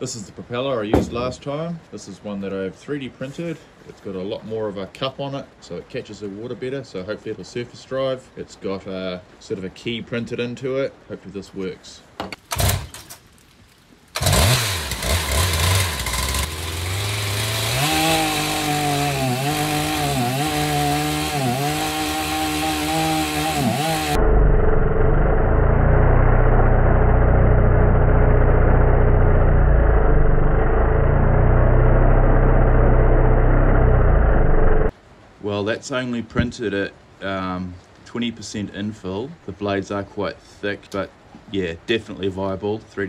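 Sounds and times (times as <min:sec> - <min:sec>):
chainsaw engine revving: 0:12.5 - 0:13.0, 0:14.2 - 0:34.9.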